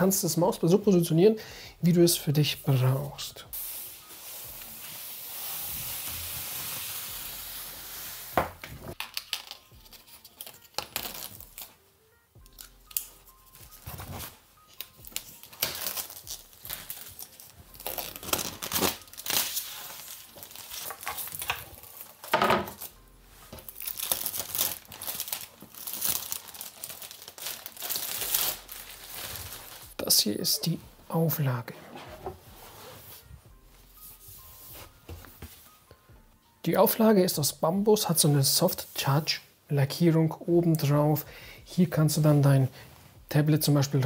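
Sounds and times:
plastic packaging crinkling: 0:13.8 - 0:22.9, 0:23.5 - 0:30.0.

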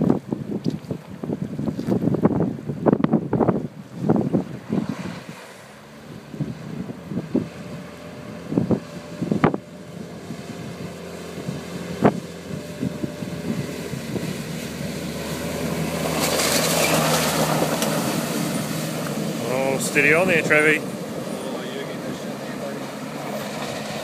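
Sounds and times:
water splashing off wheels: 0:00.0 - 0:24.0
wind buffeting microphone: 0:00.0 - 0:24.0
truck engine running: 0:05.8 - 0:24.0.

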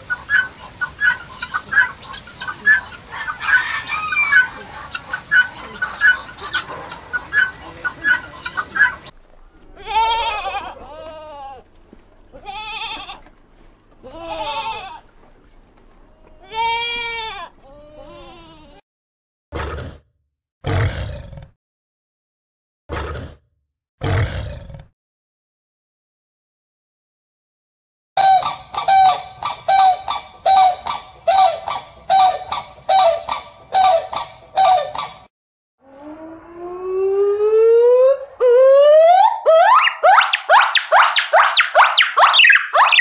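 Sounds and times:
chickens clucking: 0:00.0 - 0:09.7, 0:28.2 - 0:35.3
loud calls with deep rumble: 0:00.0 - 0:18.8, 0:28.2 - 0:43.0
animal bleating: 0:04.2 - 0:15.1, 0:16.1 - 0:18.8.

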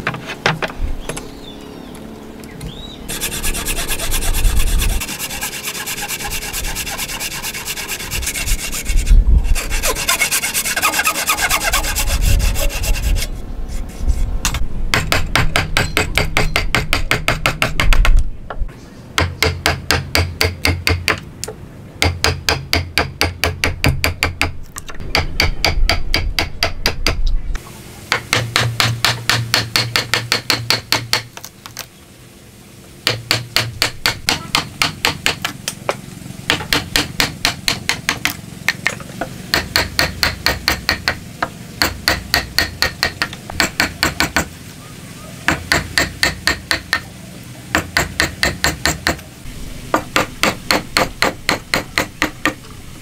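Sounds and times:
hammer striking steel chisel: 0:28.1 - 0:31.3, 0:41.8 - 0:44.5, 0:45.5 - 0:47.0, 0:47.7 - 0:49.2, 0:50.0 - 0:52.6.

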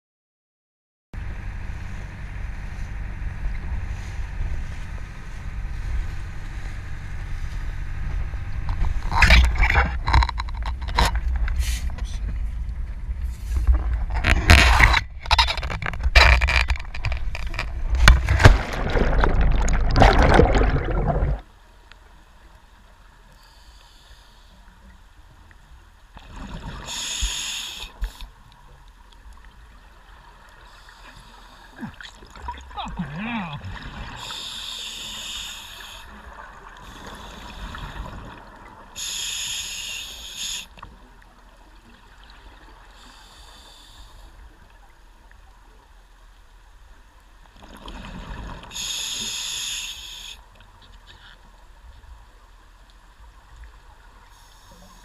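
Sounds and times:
boat motor and rushing water: 0:01.2 - 0:55.0
regulator bubbles underwater: 0:17.5 - 0:21.5.

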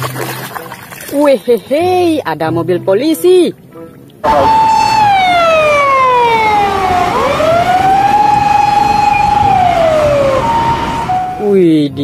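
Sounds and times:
electronic wail siren: 0:04.2 - 0:11.4.

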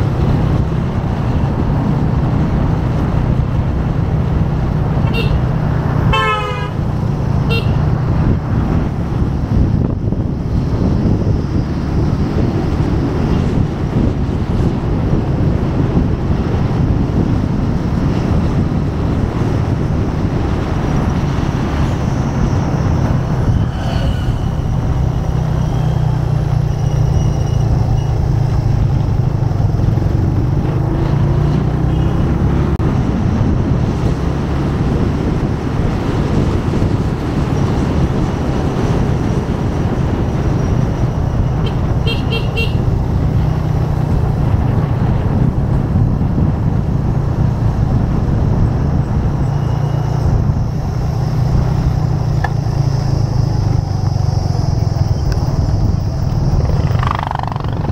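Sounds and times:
road and wind noise: 0:00.0 - 0:57.9
horn toots: 0:05.0 - 0:05.5, 0:06.1 - 0:07.9, 0:41.6 - 0:42.9
motorcycle engine running: 0:50.2 - 0:57.9.

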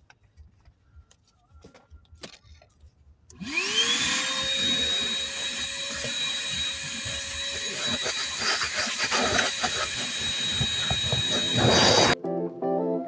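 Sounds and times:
vacuum cleaner whine: 0:03.4 - 0:12.2.

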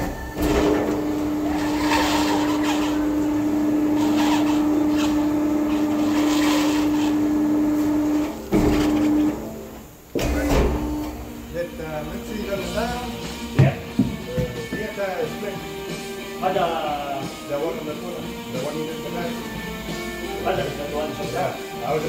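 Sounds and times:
tyre scraping on rim: 0:00.4 - 0:03.2, 0:03.9 - 0:09.2
electric motor humming: 0:00.7 - 0:13.6.

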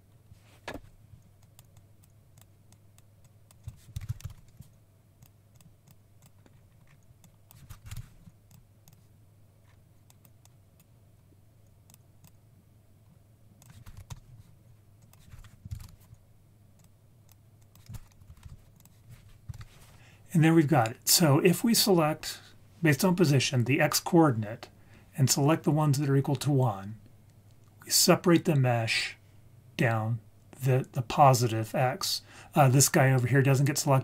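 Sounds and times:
faint low hum: 0:00.0 - 0:34.0
keyboard typing: 0:01.4 - 0:09.1, 0:13.6 - 0:16.2, 0:16.8 - 0:19.8.

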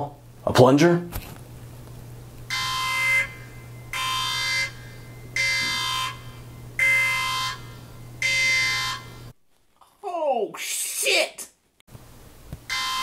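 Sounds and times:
steady low hum: 0:00.0 - 0:10.0
electronic buzzer blasts: 0:02.5 - 0:09.3, 0:12.7 - 0:13.0.

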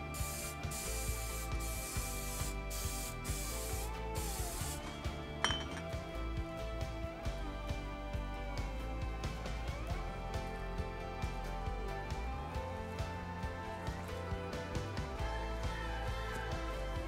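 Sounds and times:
spray can hissing: 0:00.0 - 0:05.1
background music: 0:00.0 - 0:17.0.

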